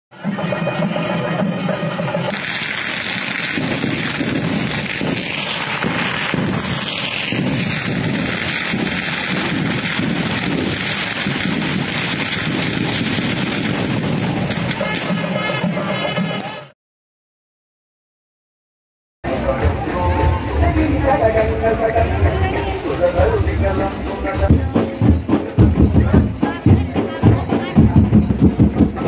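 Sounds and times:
drums beating in steady rhythm: 0:00.1 - 0:16.7, 0:19.2 - 0:29.0
firework crackle: 0:01.6 - 0:16.5.

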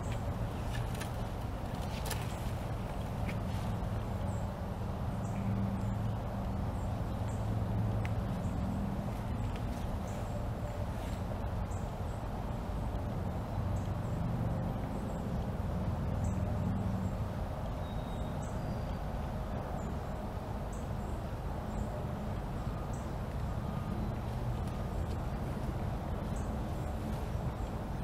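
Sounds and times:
distant road traffic rumble: 0:00.0 - 0:28.0.

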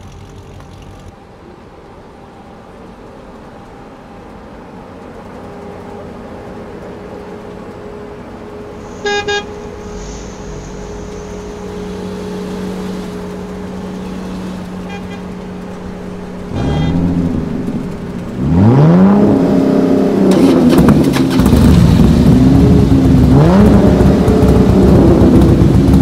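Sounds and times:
car engine running: 0:04.8 - 0:26.0
car horn tooting: 0:08.8 - 0:09.8, 0:13.7 - 0:15.8, 0:16.4 - 0:17.4.

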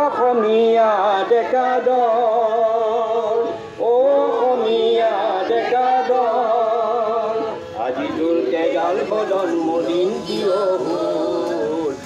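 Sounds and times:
group of voices singing: 0:00.0 - 0:12.0
harmonium: 0:00.0 - 0:12.0.

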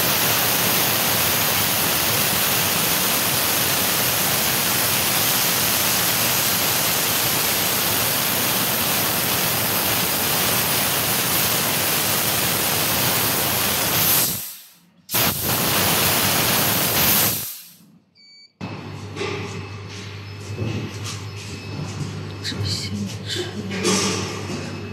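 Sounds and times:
laser cutter gas hiss: 0:00.0 - 0:17.8.

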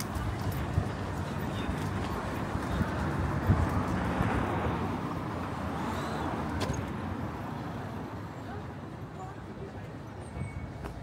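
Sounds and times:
street ambience: 0:00.0 - 0:11.0
vehicle passing: 0:00.2 - 0:08.1.

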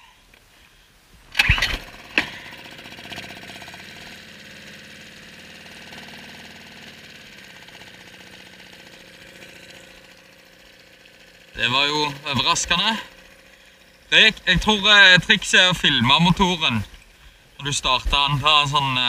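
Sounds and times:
outboard motor idling: 0:01.4 - 0:19.0
engine knock: 0:01.8 - 0:15.5.

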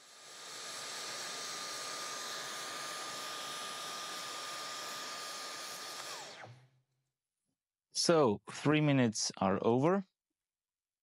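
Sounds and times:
vacuum cleaner whining: 0:00.0 - 0:06.8.

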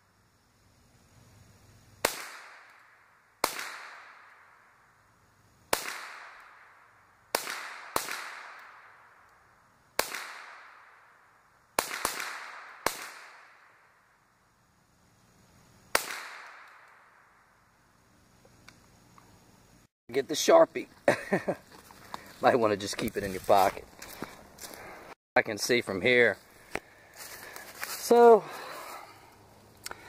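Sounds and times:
rifle shots echoing: 0:02.0 - 0:04.5, 0:05.7 - 0:09.1, 0:10.0 - 0:11.1, 0:11.8 - 0:13.7, 0:15.9 - 0:17.0.

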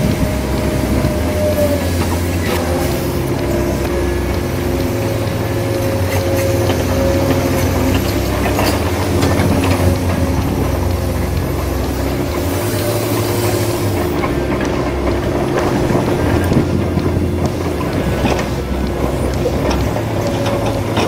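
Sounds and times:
electric winch motor humming: 0:00.0 - 0:21.0.

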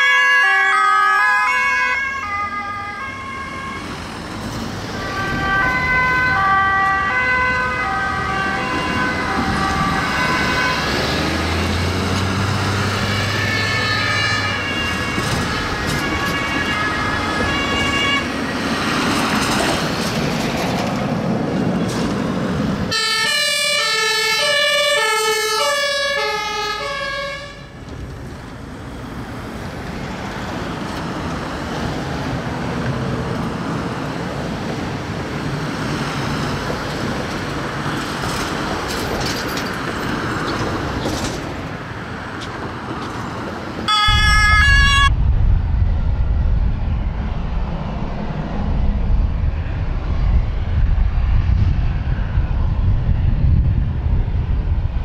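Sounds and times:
two-tone sirens: 0:00.0 - 0:19.0, 0:22.9 - 0:28.0, 0:43.8 - 0:45.3
traffic noise: 0:00.0 - 0:55.0
vehicle engines and tyres: 0:00.0 - 0:55.0.

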